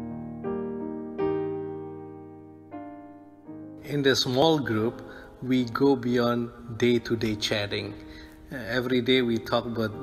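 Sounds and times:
gentle piano chords: 0.0 - 10.0.

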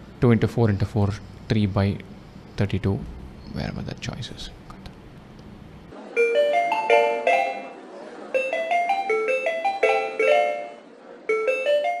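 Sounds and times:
mallet percussion jingle: 6.2 - 7.8, 8.4 - 12.0.

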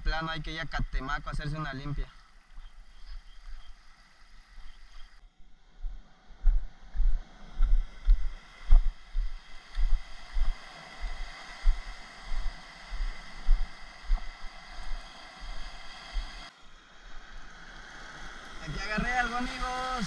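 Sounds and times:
surf and wind hiss: 6.0 - 20.0.

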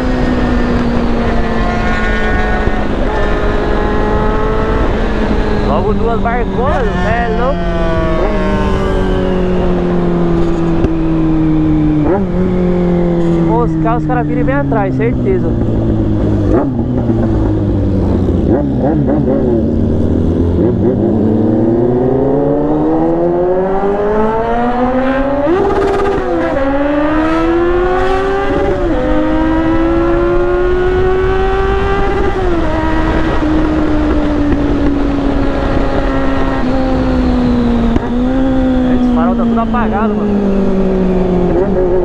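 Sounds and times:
motorcycle engine accelerating: 0.0 - 42.0
wind on microphone: 23.0 - 42.0.

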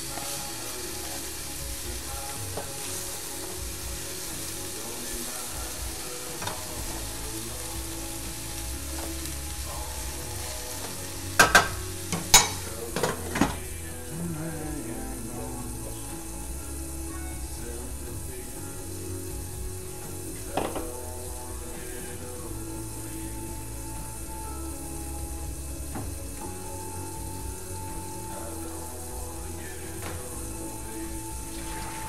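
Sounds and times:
chicken sizzling in skillet: 0.0 - 32.0
glass lid clanking on pan: 11.4 - 13.5.

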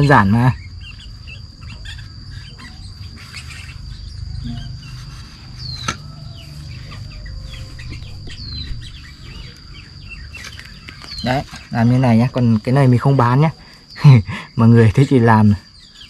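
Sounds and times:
high insect drone: 0.0 - 16.0
small birds chirping: 0.0 - 16.0
low rumble: 6.3 - 10.4.

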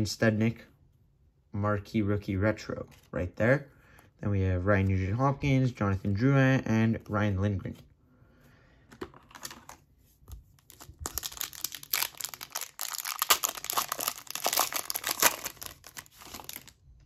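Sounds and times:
foil wrapper crinkling and tearing: 10.6 - 16.8.

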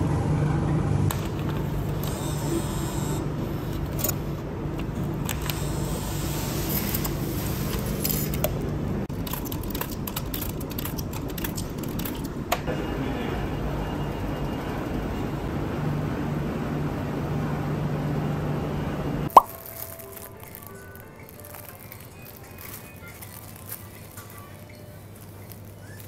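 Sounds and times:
coins clinking: 19.4 - 26.0.

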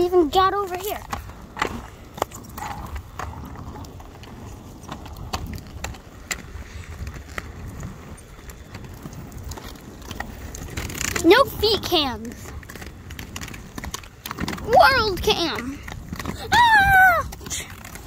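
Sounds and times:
roller skate wheels on pavement: 0.0 - 18.0.

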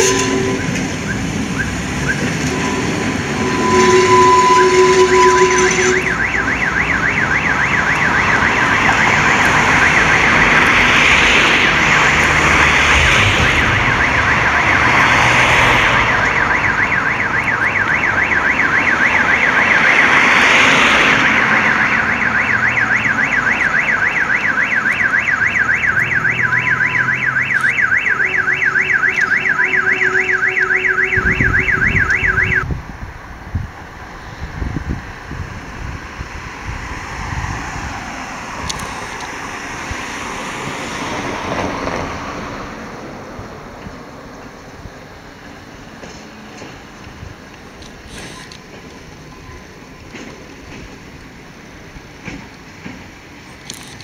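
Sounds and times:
electronic alarm tone warbling: 0.0 - 10.8, 21.3 - 32.6
rushing noise: 0.0 - 54.0.

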